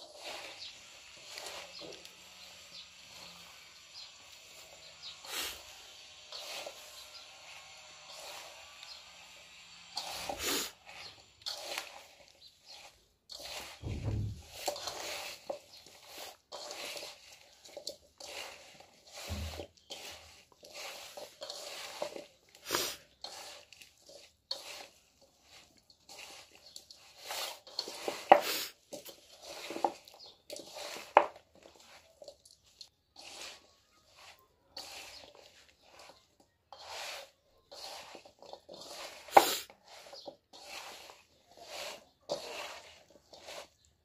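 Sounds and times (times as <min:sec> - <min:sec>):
crunching and rustling in a bowl: 0:00.0 - 0:44.0
low thump: 0:13.8 - 0:14.6.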